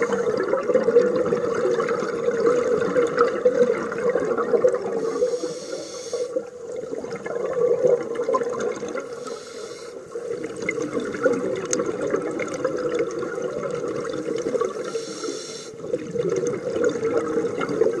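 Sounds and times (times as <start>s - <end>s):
divers exhaled bubbles gurgling: 0.0s - 18.0s
regulator hiss: 5.0s - 6.4s, 9.1s - 10.2s, 14.8s - 15.8s.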